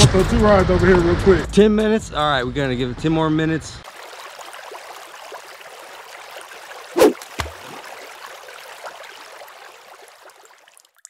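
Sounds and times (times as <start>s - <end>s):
running water rushing: 3.8s - 11.0s.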